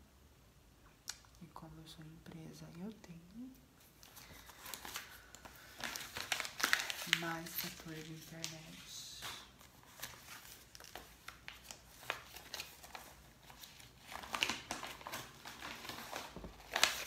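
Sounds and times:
paper rustling and crinkling: 0:03.8 - 0:17.0.

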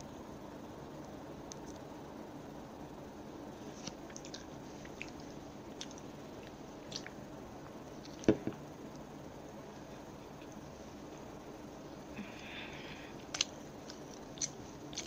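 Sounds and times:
chewing and wet mouth clicks: 0:04.1 - 0:07.2, 0:13.3 - 0:15.0.

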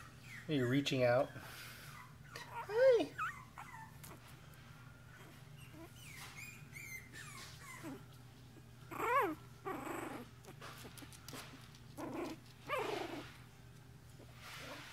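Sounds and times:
puppies yelping: 0:00.0 - 0:04.2, 0:05.2 - 0:08.1, 0:08.9 - 0:10.3
puppies growling: 0:05.1 - 0:08.2, 0:08.8 - 0:13.6.

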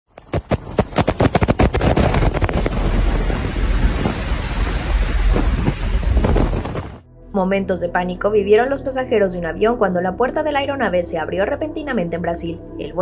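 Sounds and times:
fast run of thumps: 0:00.1 - 0:07.0
wind buffeting microphone: 0:00.3 - 0:07.1
wind rushing into aircraft cabin: 0:00.6 - 0:07.1.

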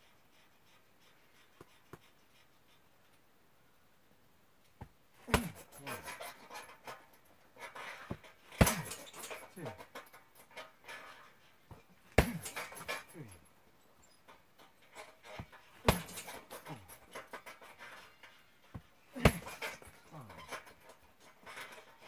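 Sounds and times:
punching bag kick thuds: 0:05.3 - 0:05.7, 0:08.1 - 0:09.0, 0:12.2 - 0:12.6, 0:15.4 - 0:16.4, 0:19.2 - 0:19.7.

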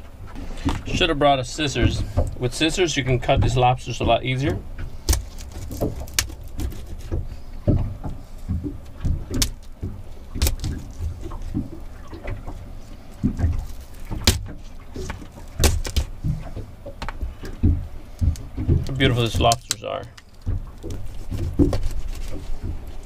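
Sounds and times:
knife cracking lobster shells: 0:05.0 - 0:07.1, 0:10.4 - 0:10.9.

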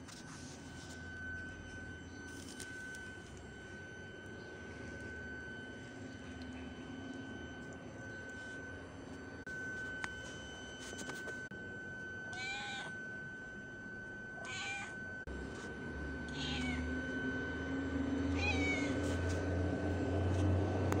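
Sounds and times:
low hum: 0:00.0 - 0:21.0
cat meowing: 0:12.3 - 0:13.0, 0:14.4 - 0:15.0, 0:16.3 - 0:16.8, 0:18.3 - 0:19.0.

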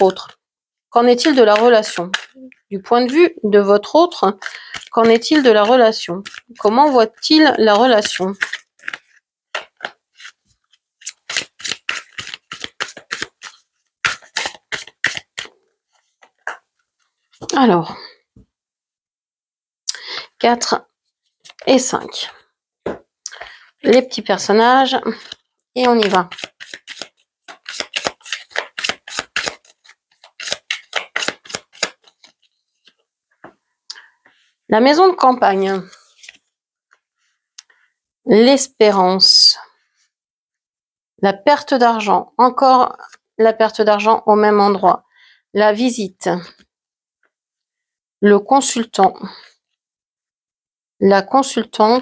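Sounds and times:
cards being shuffled: 0:01.0 - 0:03.2, 0:04.2 - 0:17.5, 0:21.3 - 0:22.3, 0:25.1 - 0:33.0, 0:35.8 - 0:36.5.

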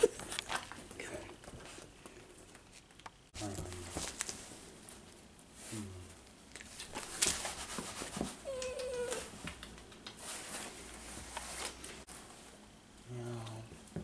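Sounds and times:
dog whimpering: 0:08.4 - 0:09.3.

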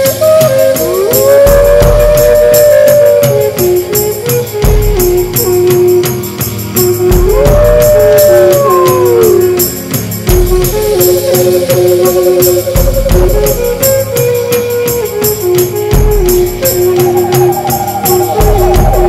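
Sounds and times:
fast rattling beat: 0:00.0 - 0:19.0
gliding howling tones: 0:17.0 - 0:19.0.

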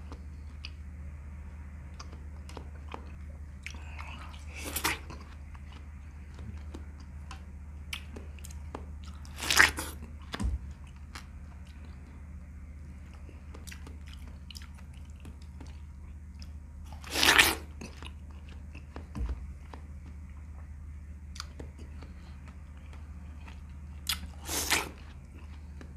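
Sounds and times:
steady low hum: 0:00.0 - 0:25.9
chewing: 0:01.9 - 0:12.2, 0:12.9 - 0:25.9
biting into watermelon: 0:02.0 - 0:11.8, 0:16.4 - 0:20.2, 0:21.3 - 0:25.9.

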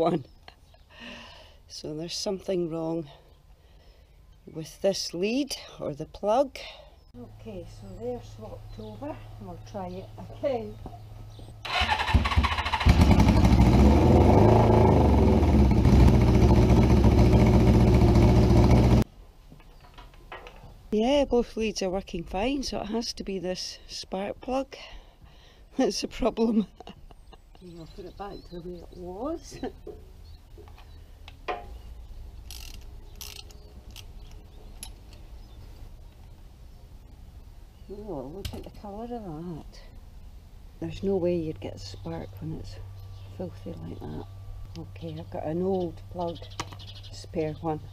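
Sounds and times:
electric starter cranking: 0:11.7 - 0:19.0
motorcycle engine running unevenly: 0:12.9 - 0:19.0
ratchet wrench rasping: 0:32.5 - 0:34.1.

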